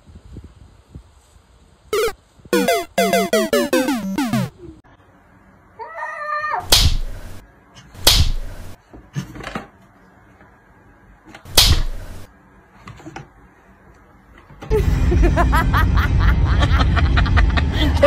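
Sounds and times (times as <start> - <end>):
cat wavering cry: 5.8 - 6.7.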